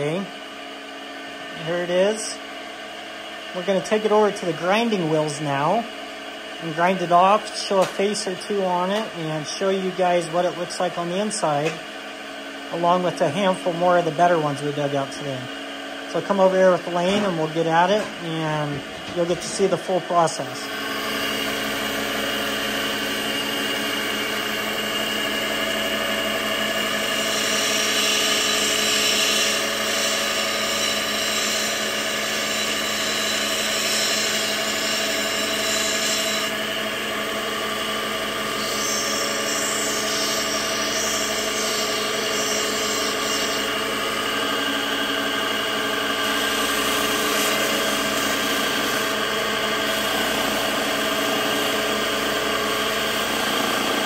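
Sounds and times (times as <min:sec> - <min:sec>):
grinding wheel motor hum: 0:00.0 - 0:54.0
stone grinding hiss: 0:38.5 - 0:43.7.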